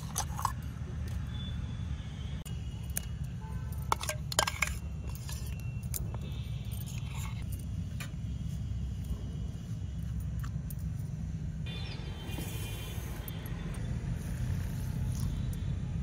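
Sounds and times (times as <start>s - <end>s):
glass bowls and kitchenware clinking: 3.8s - 5.6s.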